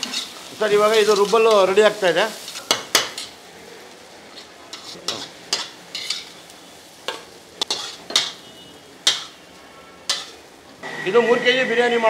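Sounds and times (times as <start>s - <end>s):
metal spatula scraping a pan: 0.0s - 3.4s, 4.3s - 6.5s, 7.1s - 9.4s, 10.0s - 10.5s
faint sizzle: 0.0s - 12.0s.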